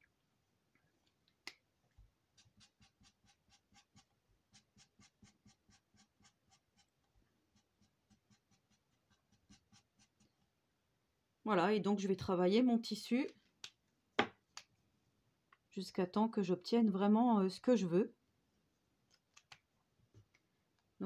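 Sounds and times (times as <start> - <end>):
marker strokes on paper: 2.3 - 10.3.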